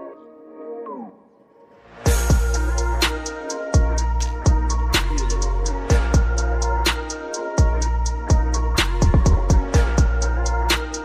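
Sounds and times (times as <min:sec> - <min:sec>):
fast hi-hat ticks: 0:02.2 - 0:11.0
deep kick drums: 0:03.8 - 0:04.8, 0:07.6 - 0:10.2.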